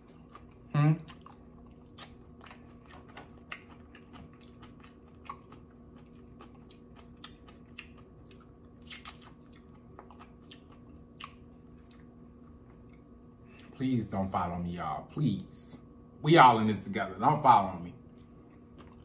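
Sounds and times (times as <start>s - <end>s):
chewing and mouth smacks: 0.0s - 13.7s, 18.1s - 19.0s
faint steady hum: 0.0s - 19.0s.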